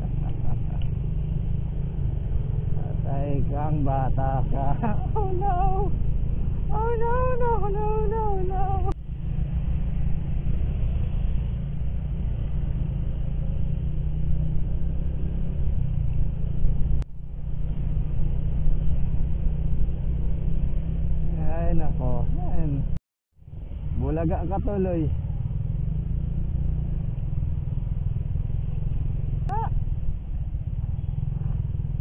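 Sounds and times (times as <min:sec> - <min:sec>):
scooter engine running: 0:00.0 - 0:09.5, 0:24.6 - 0:32.0
wind and road noise: 0:00.0 - 0:32.0.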